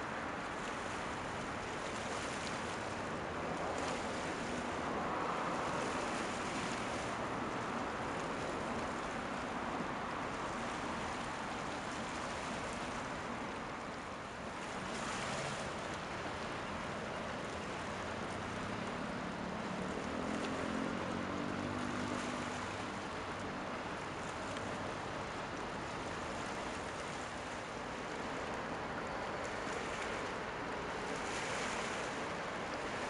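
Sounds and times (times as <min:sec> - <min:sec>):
rushing water: 0:00.0 - 0:33.0
wind: 0:00.0 - 0:33.0.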